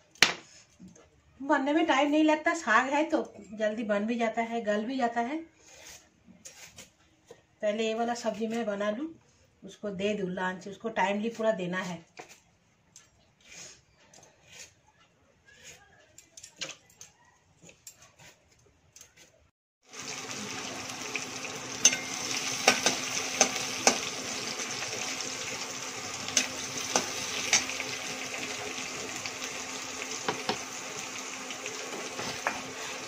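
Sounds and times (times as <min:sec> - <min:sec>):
metal spatula scraping a pan: 0:05.5 - 0:07.2, 0:13.3 - 0:14.9, 0:15.5 - 0:19.4, 0:26.2 - 0:29.2, 0:31.9 - 0:33.0
oil sizzling in a wok: 0:19.8 - 0:33.0.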